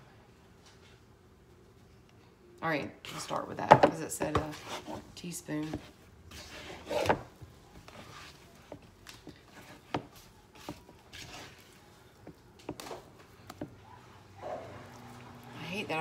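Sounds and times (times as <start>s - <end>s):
hands kneading wet dough: 5.6s - 13.9s.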